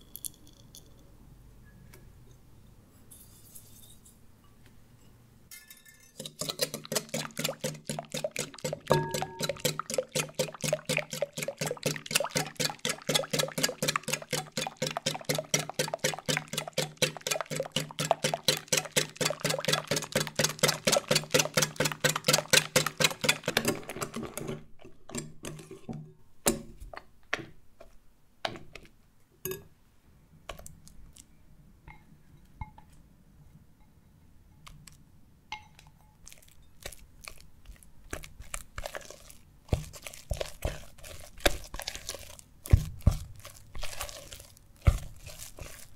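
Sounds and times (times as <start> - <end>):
whisk tapping and scraping: 6.0 - 26.0, 36.3 - 45.9
whisk beating in glass bowl: 6.2 - 24.5, 38.2 - 45.9.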